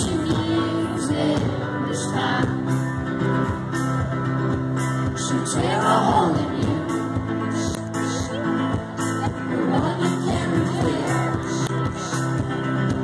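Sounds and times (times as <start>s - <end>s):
man singing: 0.0s - 2.8s, 5.0s - 8.5s, 9.3s - 12.5s
strummed acoustic guitar: 0.0s - 13.0s
steady drum beat: 3.3s - 13.0s.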